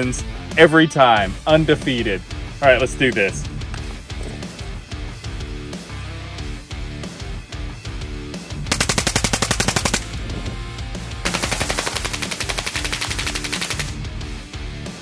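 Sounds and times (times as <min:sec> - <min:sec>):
rifle firing full-auto bursts: 0:08.7 - 0:10.2, 0:11.2 - 0:14.0.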